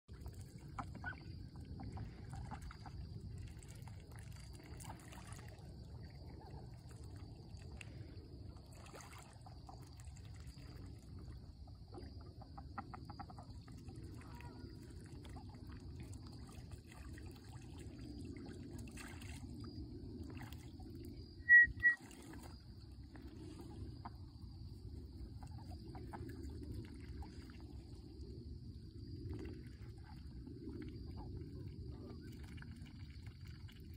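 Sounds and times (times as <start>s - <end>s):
water trickling and lapping: 0.1s - 33.9s
high-pitched chirps: 21.5s - 22.0s.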